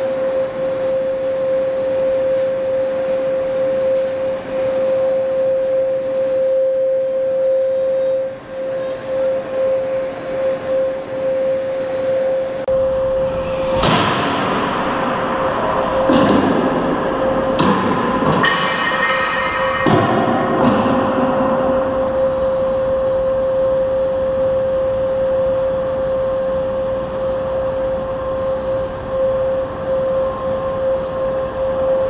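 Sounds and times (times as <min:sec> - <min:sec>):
steady machine hum: 0:00.0 - 0:32.0
loud bangs with metallic ringing: 0:12.7 - 0:23.3.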